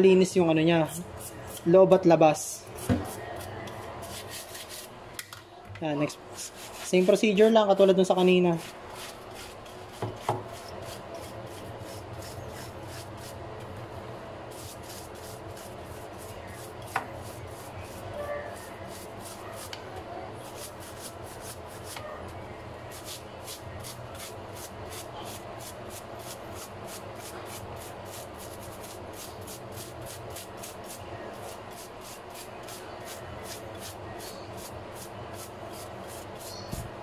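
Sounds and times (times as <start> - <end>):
brush scrubbing wet wood: 6.4 - 13.3, 14.5 - 19.7, 20.4 - 22.0, 22.9 - 36.7.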